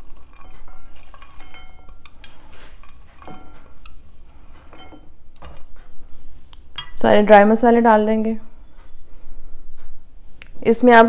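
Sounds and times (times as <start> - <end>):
ceramic dish clinking against bowl: 0.2 - 4.0, 4.7 - 5.1, 6.8 - 7.1.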